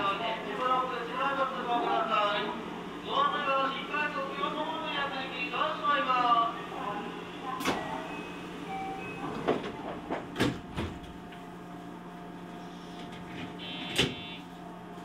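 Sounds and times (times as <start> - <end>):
high buzzing tone: 13.6 - 14.4.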